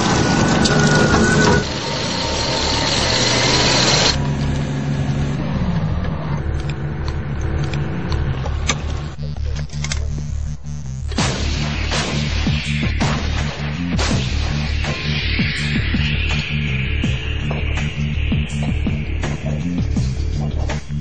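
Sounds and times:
tracked vehicle engines running: 0:00.0 - 0:11.2.

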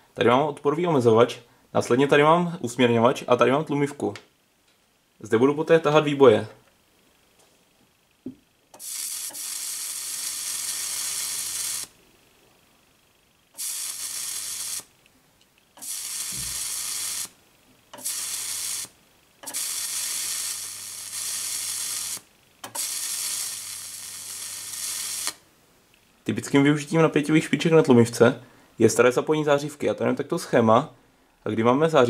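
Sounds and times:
electric arcs sizzling: 0:08.7 - 0:12.0, 0:13.5 - 0:15.1, 0:15.7 - 0:25.5.

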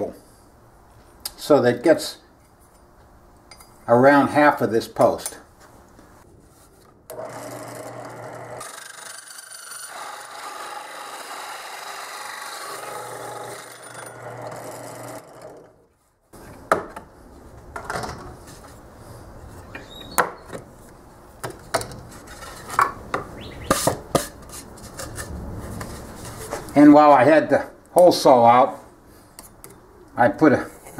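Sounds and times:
drill press hole saw cutting wood: 0:07.1 - 0:15.8.

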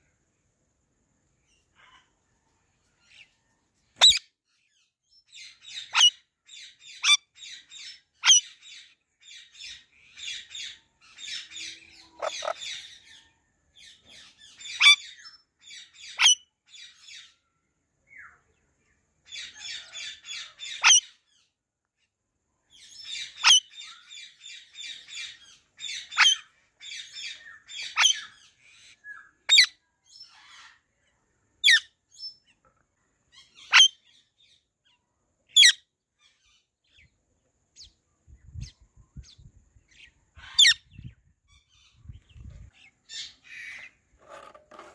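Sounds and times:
parakeet squawks: 0:04.0 - 0:04.2, 0:05.8 - 0:06.2, 0:08.2 - 0:08.6, 0:12.1 - 0:13.0, 0:19.4 - 0:21.2, 0:23.2 - 0:23.7, 0:27.7 - 0:28.4, 0:29.5 - 0:29.7, 0:33.4 - 0:34.0, 0:40.4 - 0:40.8
parakeet chattering: 0:12.1 - 0:12.8.

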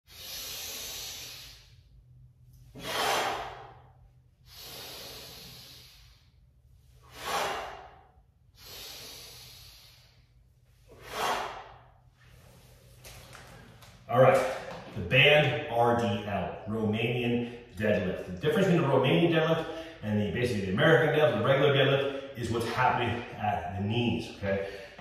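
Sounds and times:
man breathing hard: 0:00.1 - 0:12.8, 0:19.6 - 0:20.0, 0:24.6 - 0:25.0.

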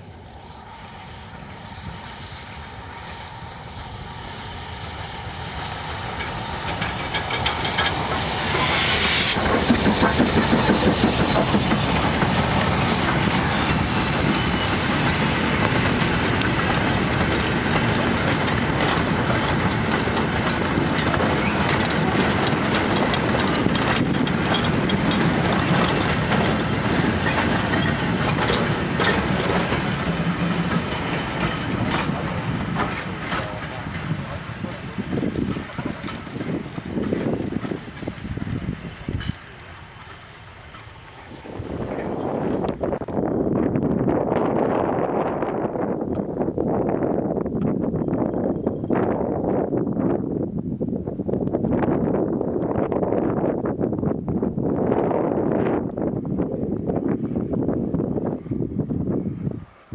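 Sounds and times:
steam hissing: 0:00.0 - 0:23.6
steam locomotive approaching: 0:00.0 - 0:59.9
wagon wheels clacking on rails: 0:05.4 - 0:43.3.

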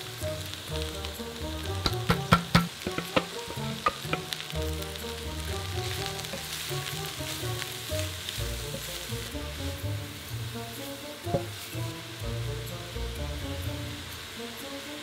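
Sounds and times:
wooden spatula stirring in a pan: 0:00.0 - 0:12.7
cauliflower sizzling in a hot pan: 0:00.0 - 0:15.0
plastic bowl knocking against a pan: 0:01.8 - 0:04.3, 0:11.3 - 0:11.6.

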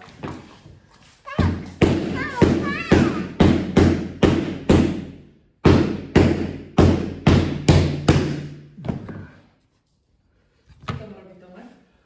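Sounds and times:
resonant knocks on hollow object: 0:01.4 - 0:08.6.

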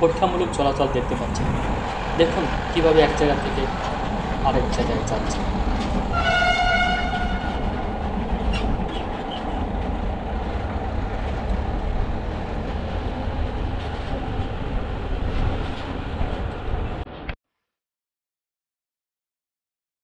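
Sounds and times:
train wheels rumbling on rails: 0:00.0 - 0:17.1
train horn: 0:06.1 - 0:07.8.

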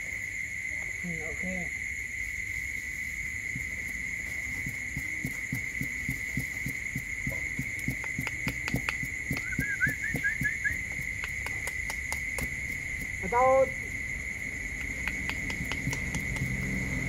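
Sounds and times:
high insect drone: 0:00.0 - 0:17.0
sharp clicks: 0:07.6 - 0:13.1, 0:14.8 - 0:16.6.

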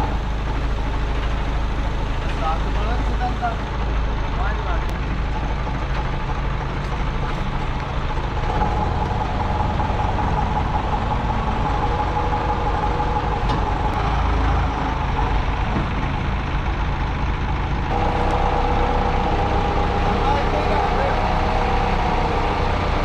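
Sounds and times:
forklift engine running: 0:00.0 - 0:23.0
steady whine: 0:14.7 - 0:23.0.

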